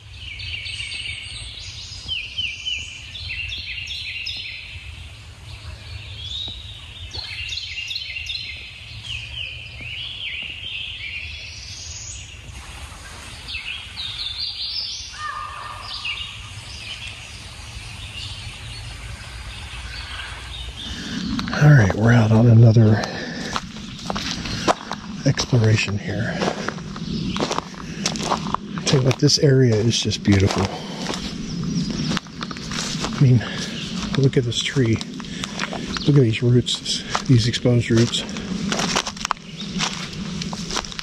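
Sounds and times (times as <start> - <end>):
songbirds chirping and trilling: 0.0 - 41.0
lower bird call: 13.1 - 40.8
steady low rumble: 15.9 - 41.0.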